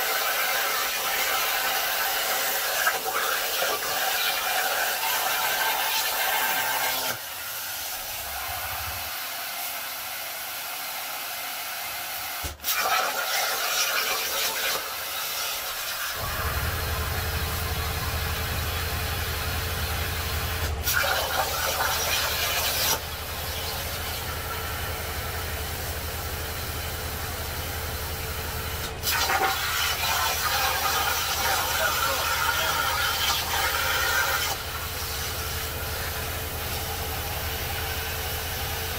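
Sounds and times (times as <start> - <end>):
plasma cutter arc hissing: 0.1 - 9.3, 12.4 - 16.8, 19.9 - 24.2, 28.6 - 38.4.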